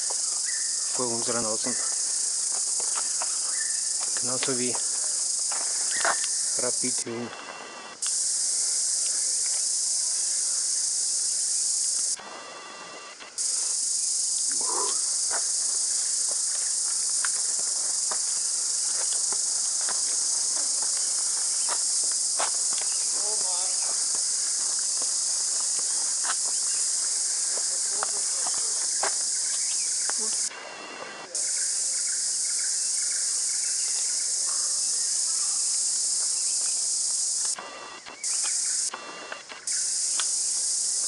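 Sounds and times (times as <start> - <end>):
cicada chorus drone: 0.0 - 41.0.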